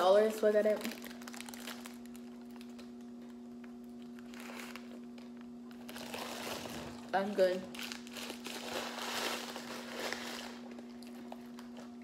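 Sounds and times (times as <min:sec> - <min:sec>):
steady low hum: 0:00.0 - 0:12.0
paper wrapper rustling: 0:00.8 - 0:02.8, 0:05.7 - 0:10.8.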